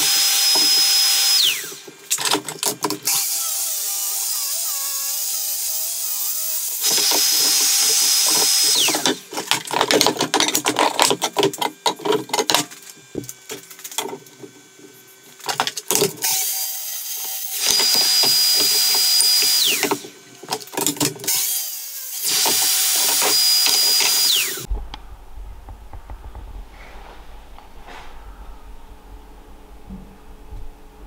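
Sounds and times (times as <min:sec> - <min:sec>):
track saw cutting wood: 0:00.0 - 0:13.3, 0:13.9 - 0:24.7
wood clattering: 0:06.9 - 0:16.3, 0:17.7 - 0:21.4.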